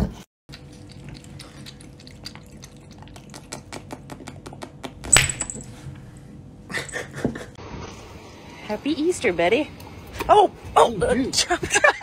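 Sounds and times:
cat lapping water: 0:00.5 - 0:04.4.

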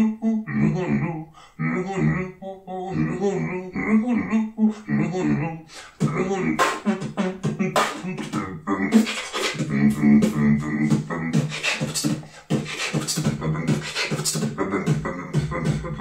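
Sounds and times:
beatboxing: 0:00.0 - 0:16.0.

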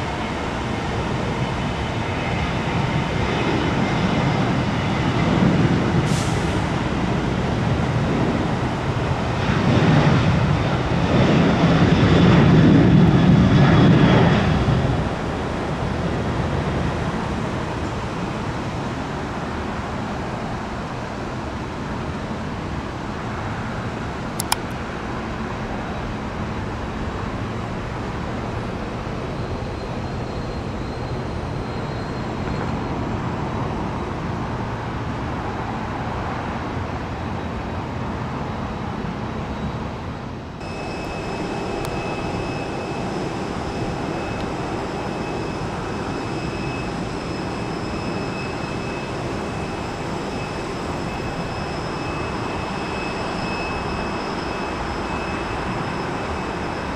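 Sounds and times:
jet engines rumbling: 0:00.0 - 0:56.9
sharp click: 0:24.4 - 0:24.8
faint high whining tones: 0:40.6 - 0:56.9.

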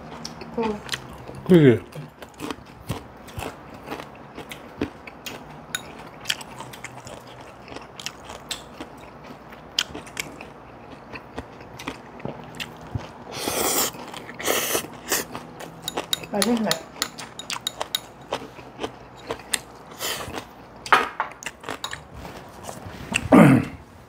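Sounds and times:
chewing: 0:00.0 - 0:23.3
utensils clicking against dishes: 0:15.7 - 0:18.4.

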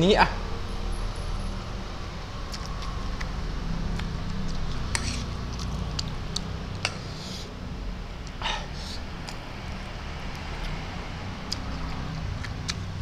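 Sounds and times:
steady low hum: 0:00.0 - 0:13.0
chewing and slurping noodles: 0:08.3 - 0:13.0.

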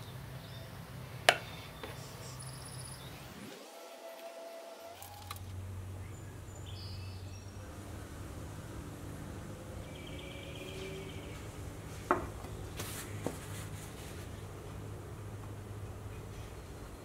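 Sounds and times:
faint bird chirps: 0:00.0 - 0:03.5, 0:05.9 - 0:07.7, 0:09.8 - 0:11.5
steady low hum: 0:00.0 - 0:17.0.

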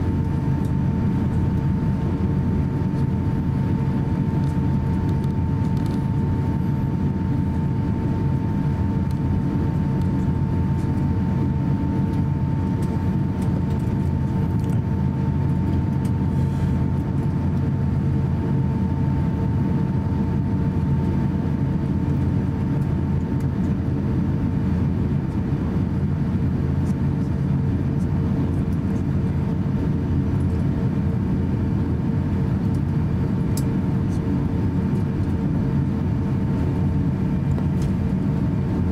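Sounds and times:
aircraft cabin rumble: 0:00.0 - 0:38.9.

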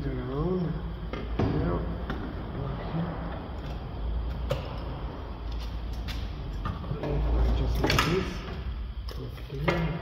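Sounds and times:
low steady rumble: 0:00.0 - 0:09.6.

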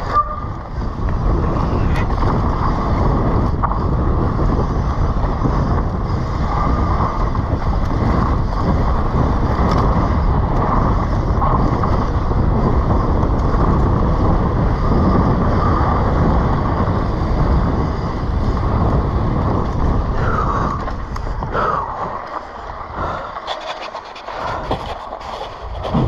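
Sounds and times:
bike tyres rolling over rocks: 0:00.0 - 0:26.0
wind buffeting microphone: 0:00.0 - 0:26.0.

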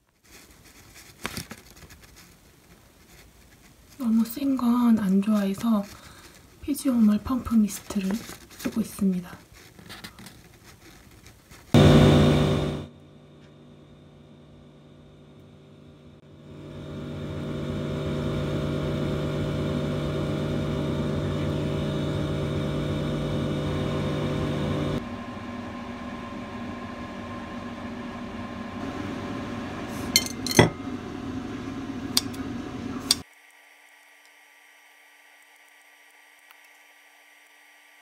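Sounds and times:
kitchen hum: 0:00.0 - 0:33.3
cutlery clinking on ceramic plate: 0:30.2 - 0:30.8.

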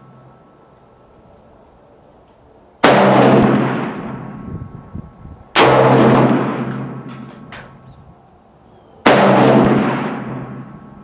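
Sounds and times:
rifle shots echoing: 0:02.8 - 0:04.5, 0:05.6 - 0:07.5, 0:09.0 - 0:10.9.

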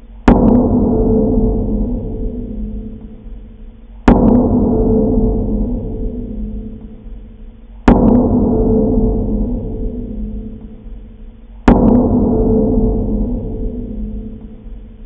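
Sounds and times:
deep gong-like metal clang: 0:00.2 - 0:15.0.

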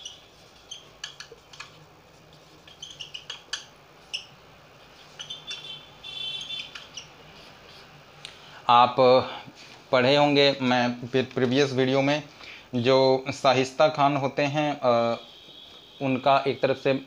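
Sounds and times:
marker squeaking on whiteboard: 0:00.0 - 0:08.0.

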